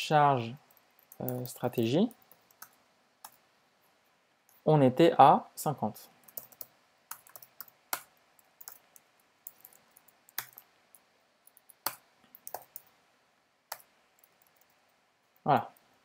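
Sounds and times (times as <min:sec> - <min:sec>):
keyboard keys clicking: 0:06.3 - 0:10.7, 0:11.5 - 0:12.9.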